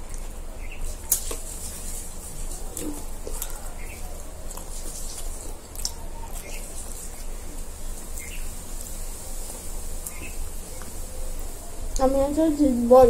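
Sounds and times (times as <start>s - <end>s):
people chewing: 0.0s - 12.1s.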